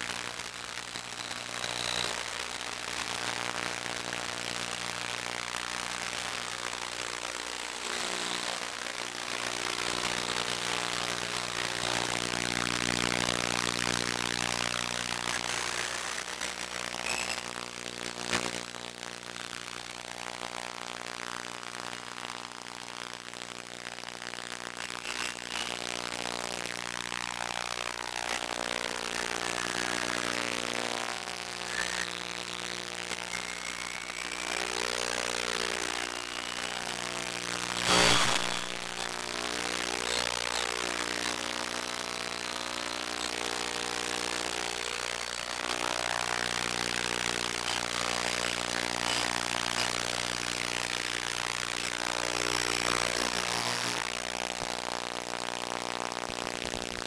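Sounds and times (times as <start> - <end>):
drone motors buzzing: 28.3 - 41.4.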